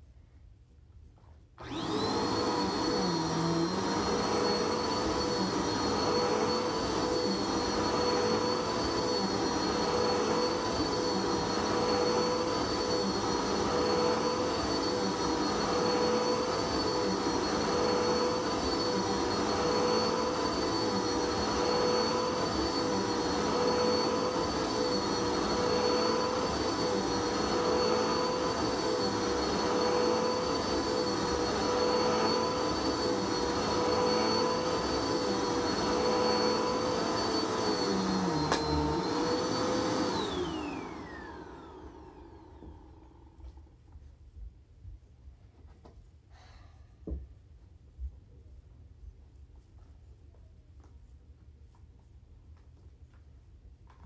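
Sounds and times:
vacuum cleaner motor whining: 1.6 - 43.8.

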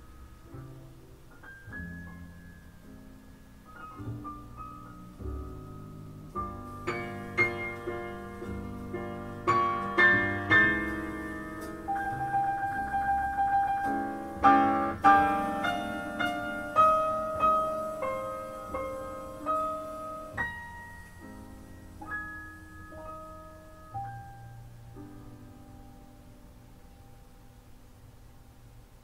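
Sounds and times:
jazz piano: 0.0 - 29.0.

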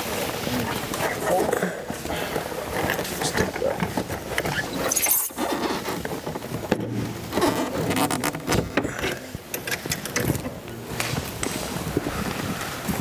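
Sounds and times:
cowling scraping and knocking: 1.9 - 11.6.

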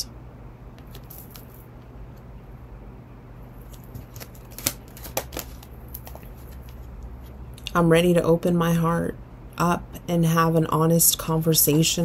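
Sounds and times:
low steady hum: 0.0 - 12.0
cards shuffling clicks: 0.8 - 1.7, 3.6 - 6.8.

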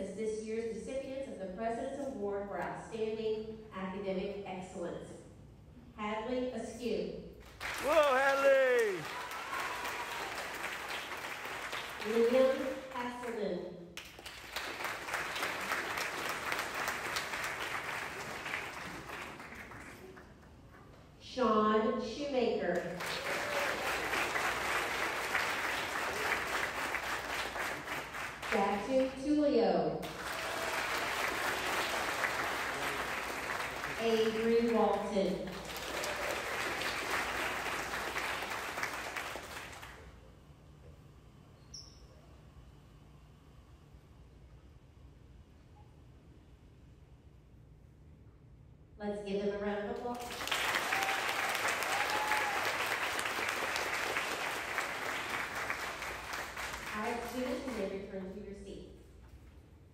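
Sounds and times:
audience applauding: 7.5 - 13.0, 14.0 - 20.4, 23.0 - 28.6, 30.0 - 40.1, 50.2 - 57.9.

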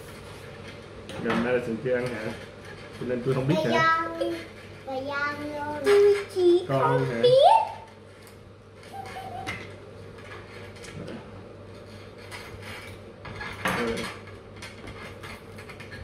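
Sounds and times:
dishware clatter: 12.2 - 16.0.

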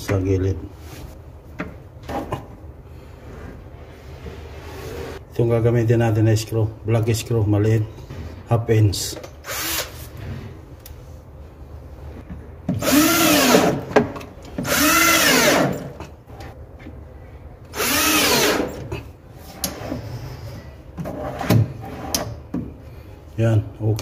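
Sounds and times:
cordless drill driving screws: 12.8 - 13.8, 14.6 - 15.9, 17.8 - 18.8.

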